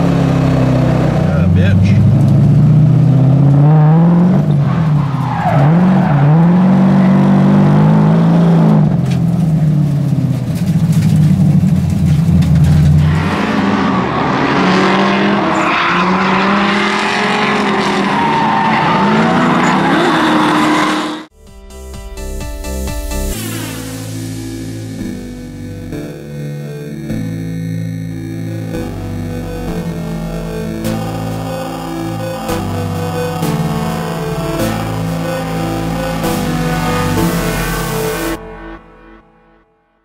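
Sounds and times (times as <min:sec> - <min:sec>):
car engine revving hard: 0:00.0 - 0:10.6, 0:12.0 - 0:21.3
tires squealing: 0:00.0 - 0:21.3.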